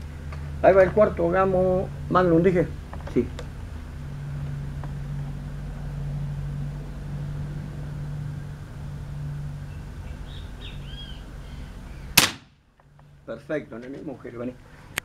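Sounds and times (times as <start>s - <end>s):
steady low hum: 0.0s - 15.0s
bird chirps: 9.6s - 12.2s
air rifle shot crack: 12.2s - 12.6s.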